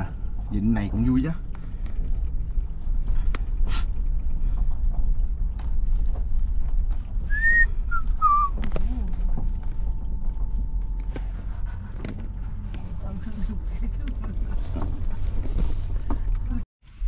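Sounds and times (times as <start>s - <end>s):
vehicle rumbling: 0.0s - 17.0s
person whistling: 7.3s - 8.5s.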